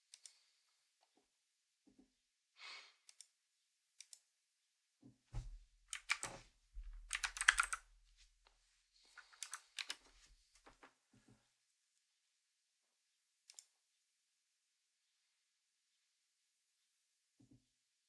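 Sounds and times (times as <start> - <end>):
computer keyboard typing: 5.9 - 6.4, 7.0 - 7.9, 9.3 - 10.0.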